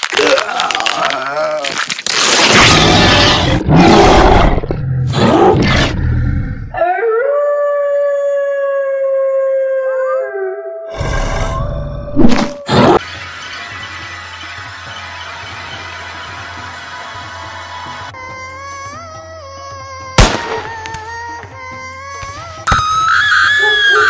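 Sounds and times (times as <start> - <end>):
wolf howl: 6.7 - 12.8, 23.0 - 24.0.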